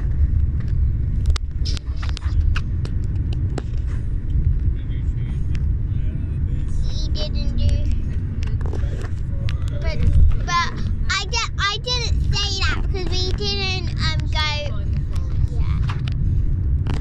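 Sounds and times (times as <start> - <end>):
car interior rumble: 0.0 - 17.0.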